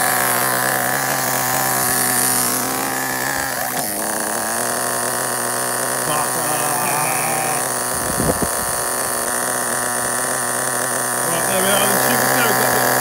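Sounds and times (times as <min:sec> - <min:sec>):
small glow engine idling: 0:00.0 - 0:13.0.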